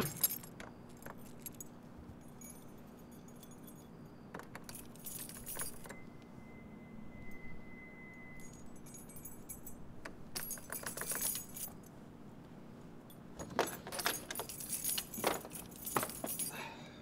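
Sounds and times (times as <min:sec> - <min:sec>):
keys jangling against metal lock: 0:00.0 - 0:06.0, 0:08.4 - 0:11.9, 0:13.1 - 0:16.6.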